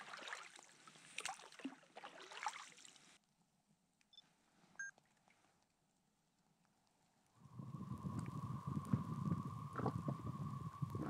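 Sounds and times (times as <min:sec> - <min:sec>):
faint hiss: 0:07.3 - 0:11.0.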